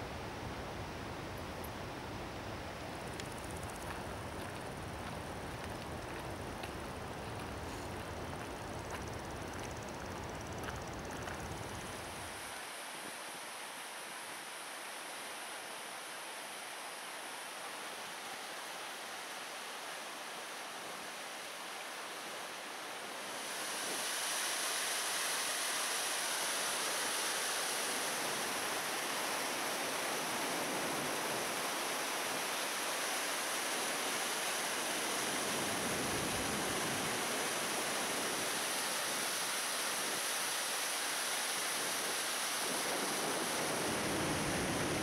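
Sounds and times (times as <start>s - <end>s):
water roaring over rapids: 11.8s - 45.0s.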